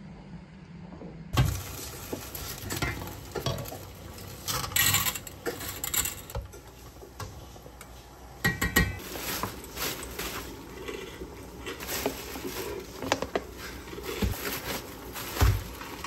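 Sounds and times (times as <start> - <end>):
water boiling: 1.3 - 16.0.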